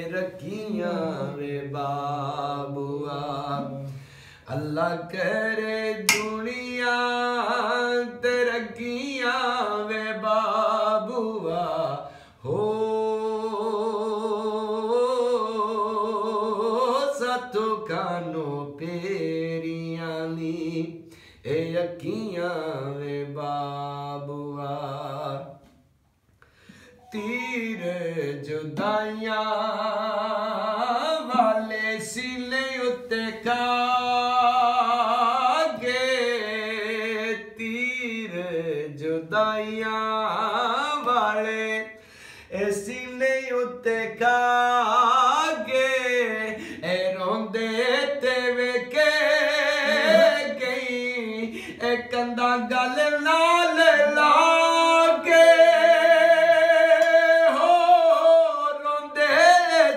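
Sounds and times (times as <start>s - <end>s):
hand taps on metal pot: 6.1s - 6.4s
man singing long notes: 27.0s - 41.9s, 42.8s - 59.9s.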